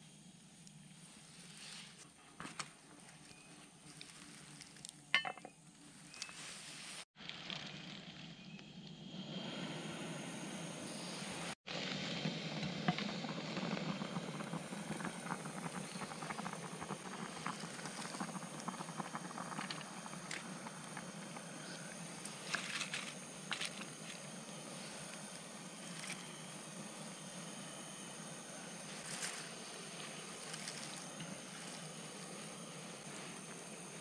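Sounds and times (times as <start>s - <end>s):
gas stove burner hissing: 9.1s - 34.0s.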